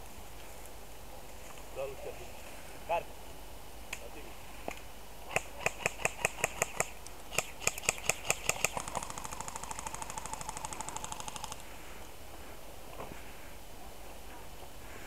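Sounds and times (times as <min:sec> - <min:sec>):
airsoft gun single shots: 0:05.3 - 0:09.1
airsoft gun automatic burst: 0:05.3 - 0:11.6.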